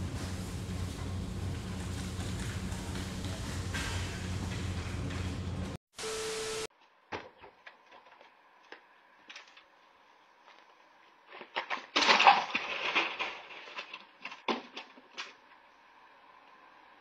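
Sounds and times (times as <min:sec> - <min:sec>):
body and bucket clattering on stones: 0:11.4 - 0:15.3.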